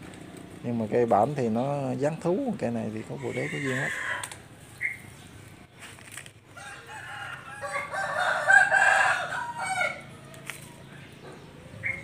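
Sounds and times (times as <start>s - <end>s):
rooster crowing: 3.1s - 4.4s, 6.5s - 10.5s.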